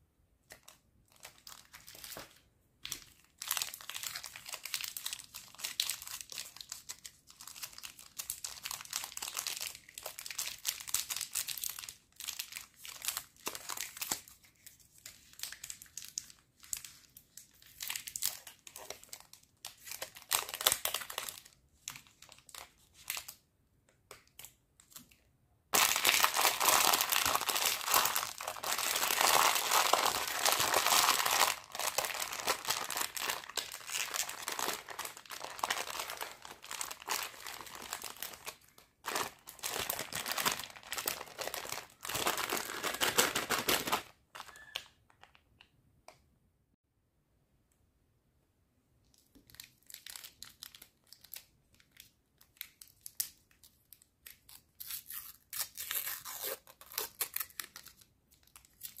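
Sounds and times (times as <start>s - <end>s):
candy wrapper rustling: 0.5s - 23.4s, 25.8s - 45.5s, 49.1s - 59.0s
plastic bag crinkling: 25.8s - 45.4s.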